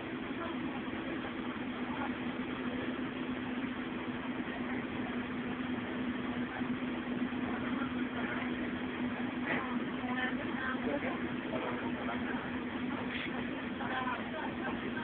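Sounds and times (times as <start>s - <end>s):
bus diesel engine idling: 0.0s - 15.0s.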